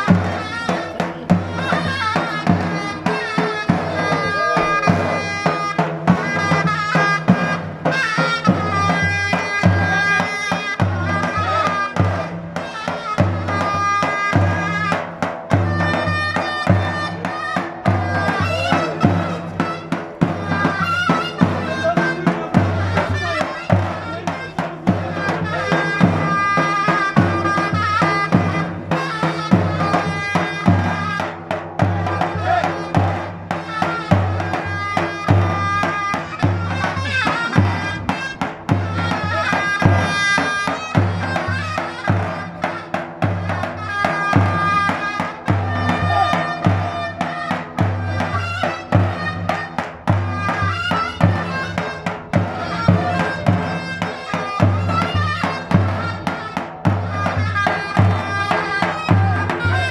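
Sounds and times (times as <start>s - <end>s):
loud high melody: 15.6s - 59.9s.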